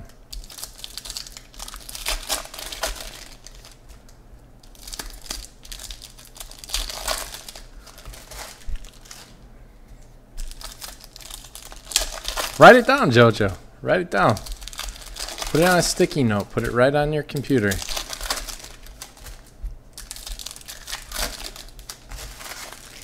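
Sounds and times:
wrappers crinkling and tearing: 0:00.3 - 0:09.4, 0:10.4 - 0:13.5, 0:14.1 - 0:23.0
cards being handled: 0:14.2 - 0:23.0.

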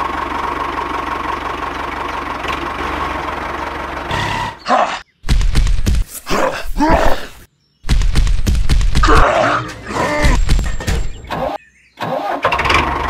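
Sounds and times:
small tractor engine running: 0:00.0 - 0:04.5, 0:12.2 - 0:13.0.

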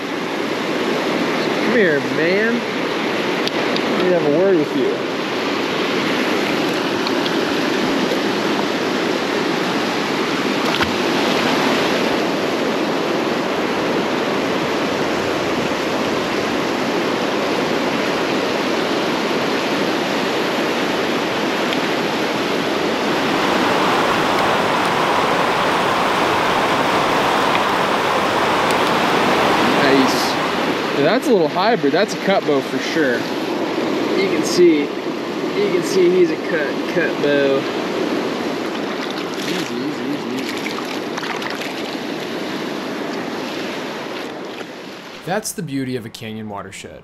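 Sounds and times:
river rushing over boulders: 0:05.0 - 0:16.8, 0:19.5 - 0:31.1.

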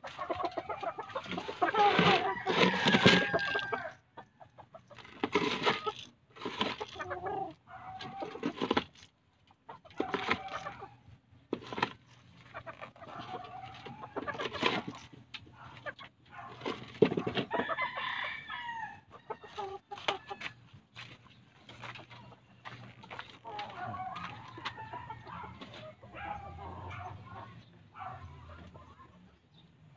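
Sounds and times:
chickens clucking: 0:00.0 - 0:29.9
rooster crowing: 0:01.9 - 0:04.0, 0:17.5 - 0:19.1, 0:23.6 - 0:25.5.

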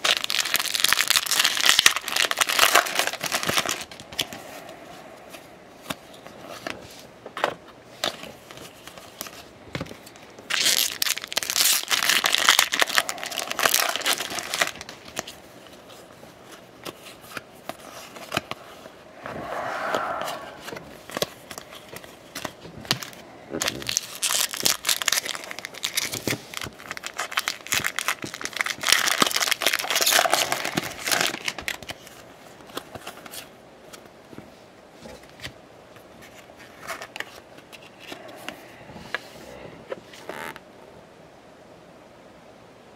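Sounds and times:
cards rustling and clicking: 0:05.3 - 0:18.9, 0:21.1 - 0:34.5.

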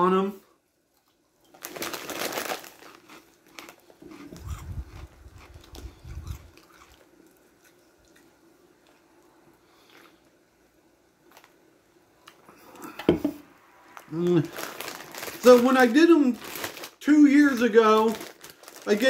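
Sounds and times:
crunching snack: 0:01.5 - 0:07.8.

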